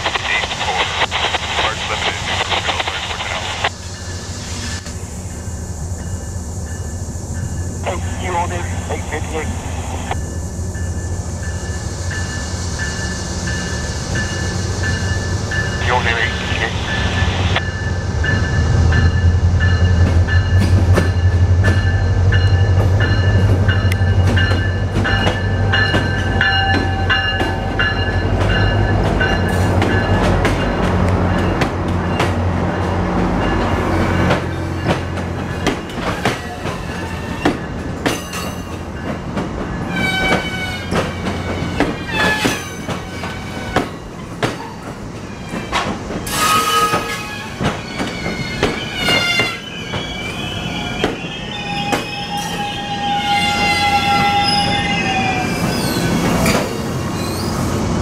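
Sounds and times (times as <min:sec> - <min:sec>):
diesel locomotive engine drone: 0:00.0 - 0:58.0
train wheels squealing: 0:10.2 - 0:15.8, 0:33.4 - 0:39.1, 0:39.7 - 0:57.9
train wheels clicking over rail joints: 0:19.6 - 0:50.1.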